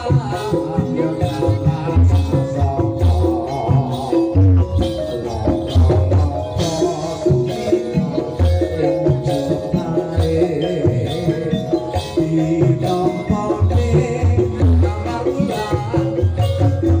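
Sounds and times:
drums beating: 0:00.0 - 0:17.0
jingling percussion: 0:00.0 - 0:17.0
ringing metallophones: 0:00.0 - 0:17.0.

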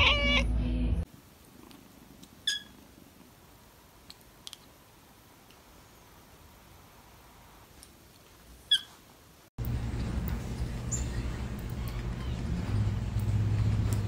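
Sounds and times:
kitten chirp: 0:02.4 - 0:02.8.

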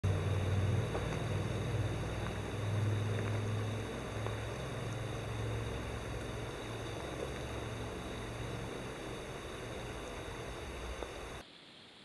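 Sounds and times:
steady low hum: 0:00.0 - 0:11.4
footsteps crunching on gravel: 0:00.5 - 0:05.4.

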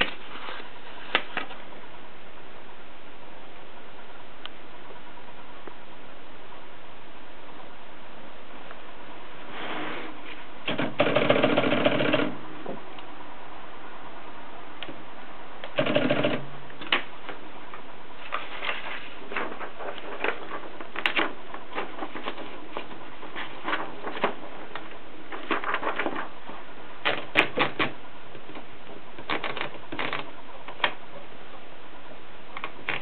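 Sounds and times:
typewriter clicks: 0:10.7 - 0:12.4, 0:15.6 - 0:17.1
typewriter heavy clatter: 0:10.7 - 0:12.4, 0:15.8 - 0:16.5
typewriter ratchet clicks: 0:10.7 - 0:12.4, 0:15.7 - 0:16.4.

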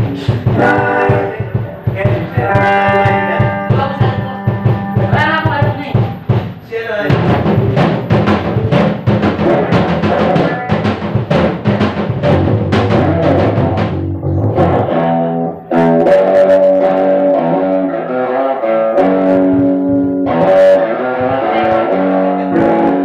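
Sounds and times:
busy drumming: 0:00.0 - 0:18.0, 0:18.7 - 0:23.0
live band playing: 0:00.0 - 0:23.0.

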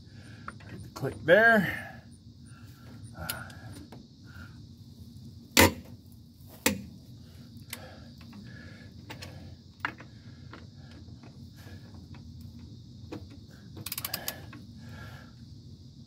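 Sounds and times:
metallic clacks of wrench on lug nuts: 0:13.8 - 0:14.5.

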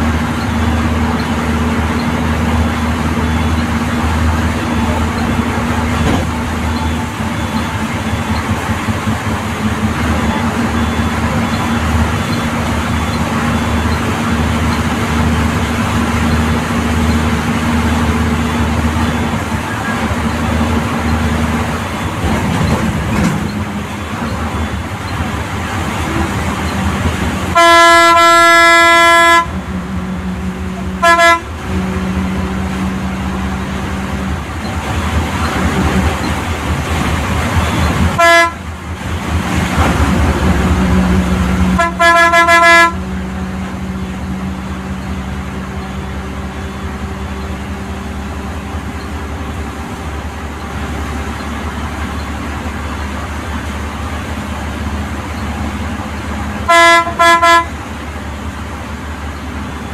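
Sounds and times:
bus horn honking: 0:00.0 - 0:34.4, 0:37.6 - 0:39.0, 0:39.7 - 0:47.4, 0:56.5 - 0:57.9
engine and road noise: 0:00.0 - 0:59.9.

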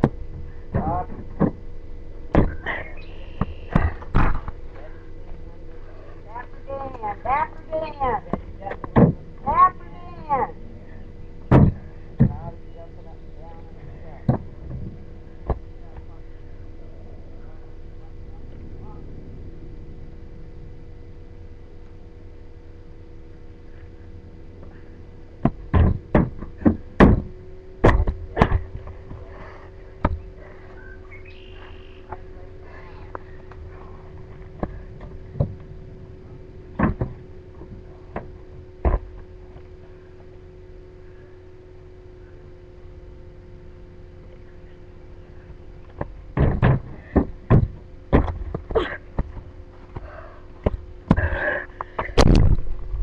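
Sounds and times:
faint electrical hum: 0:00.0 - 0:53.0
sharp knocks and thuds: 0:02.3 - 0:02.7, 0:03.4 - 0:04.6, 0:08.3 - 0:09.2, 0:11.5 - 0:12.5, 0:25.4 - 0:29.3, 0:30.0 - 0:30.3, 0:36.7 - 0:39.7, 0:46.0 - 0:50.0
camera bumps: 0:52.0 - 0:52.7.

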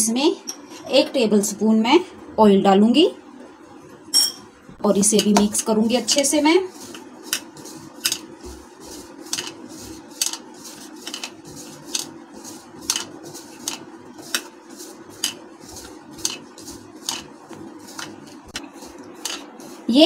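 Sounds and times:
hand rubbing flour in bowl: 0:05.5 - 0:20.0.

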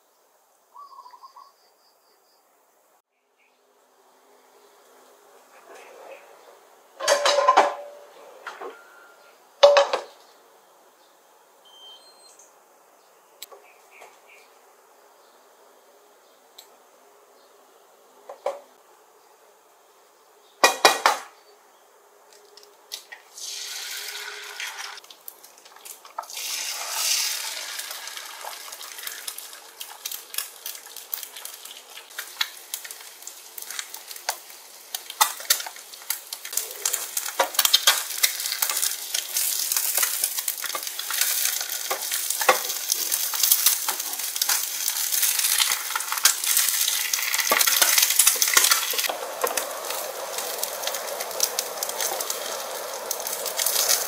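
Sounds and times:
food sizzling in a frying pan: 0:23.0 - 0:54.0.

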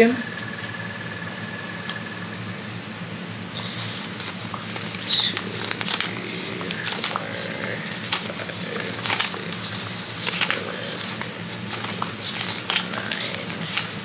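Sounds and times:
steady low hum: 0:00.0 - 0:14.0
paper bills rustling and snapping: 0:03.6 - 0:14.0.

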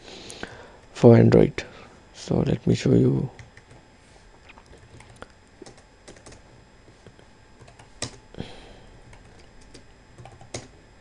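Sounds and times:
typing on computer keyboard: 0:04.9 - 0:06.4, 0:07.6 - 0:08.2, 0:09.1 - 0:10.7.

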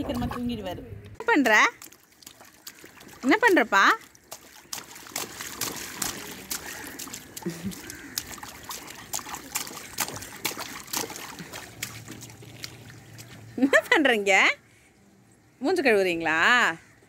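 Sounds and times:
baby splashing water: 0:01.2 - 0:14.0
dripping water: 0:01.2 - 0:14.0.

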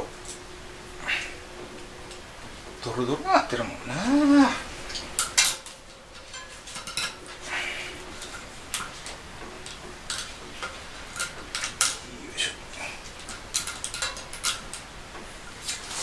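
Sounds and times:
metal tools clinking: 0:04.9 - 0:07.5, 0:08.2 - 0:14.8.

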